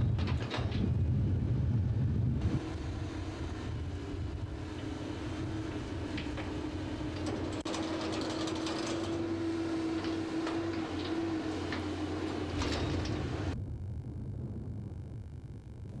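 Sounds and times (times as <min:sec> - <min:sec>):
machinery humming and rumbling: 0:00.0 - 0:16.0
metallic clicks and clanks: 0:07.1 - 0:09.4.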